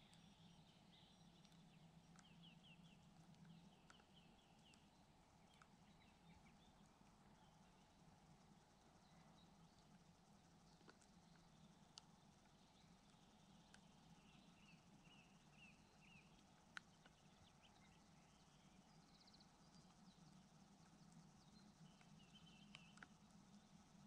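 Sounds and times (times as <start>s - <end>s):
low steady hum: 0.0s - 24.0s
sharp clicks: 16.1s - 18.0s.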